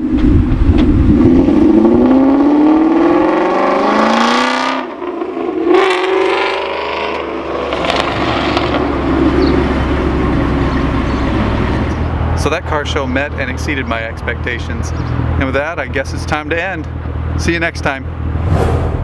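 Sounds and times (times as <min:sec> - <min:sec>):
car engine accelerating: 0:00.7 - 0:12.3.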